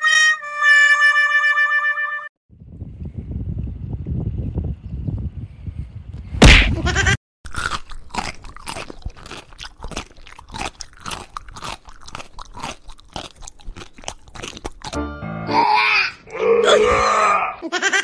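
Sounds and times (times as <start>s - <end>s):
cat chewing crunches: 7.5s - 15.0s.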